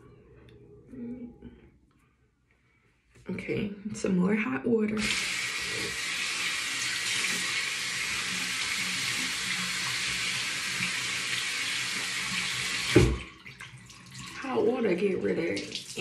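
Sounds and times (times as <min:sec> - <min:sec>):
faucet running water: 0:05.0 - 0:16.0.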